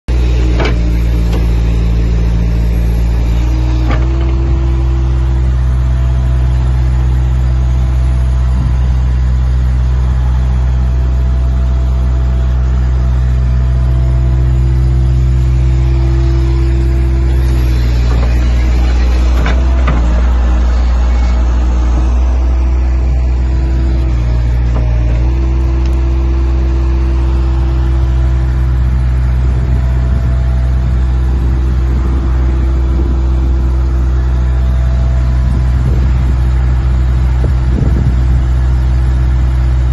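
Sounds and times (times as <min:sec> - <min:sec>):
heavy machine engine droning: 0:00.1 - 0:39.9.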